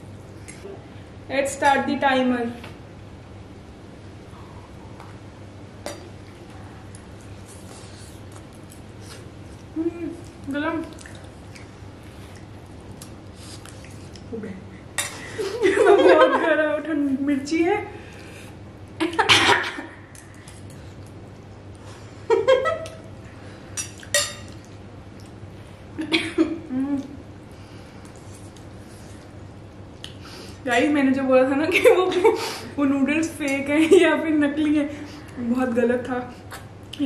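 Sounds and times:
forks clinking on glass bowls: 23.8s - 24.6s.

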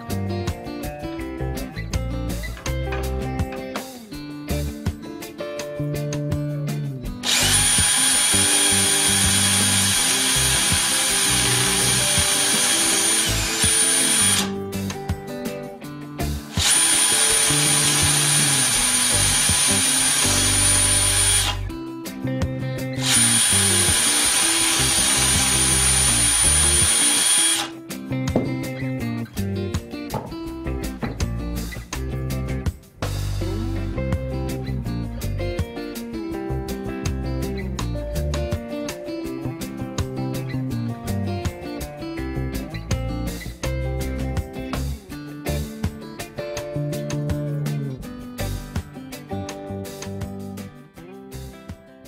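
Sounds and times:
guitar music: 0.0s - 52.0s
drill boring through wood: 7.2s - 14.6s, 16.4s - 21.7s, 23.0s - 27.8s.

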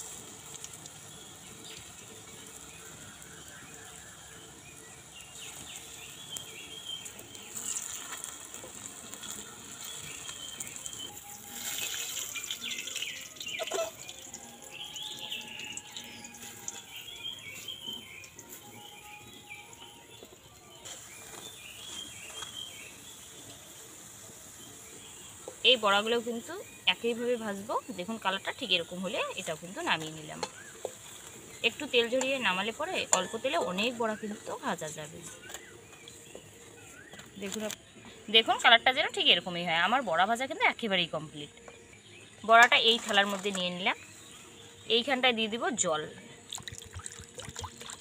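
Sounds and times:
fritters sizzling in oil: 0.0s - 48.0s
small birds chirping: 0.0s - 48.0s
metal spatula scraping pan: 13.6s - 14.0s, 30.4s - 31.6s.

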